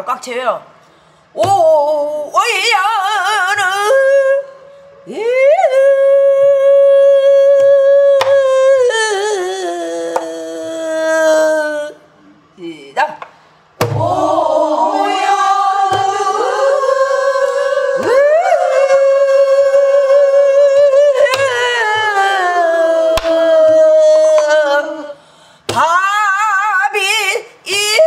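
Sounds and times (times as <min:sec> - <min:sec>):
woman singing with vibrato: 0:01.4 - 0:13.0, 0:13.8 - 0:28.0
barrel drum strokes: 0:13.8 - 0:16.6.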